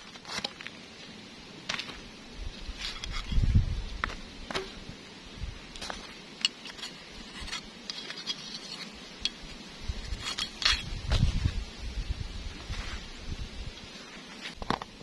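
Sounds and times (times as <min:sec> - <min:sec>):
screwdriver clicking and scraping: 0:02.8 - 0:03.4, 0:05.8 - 0:09.4, 0:10.0 - 0:10.9.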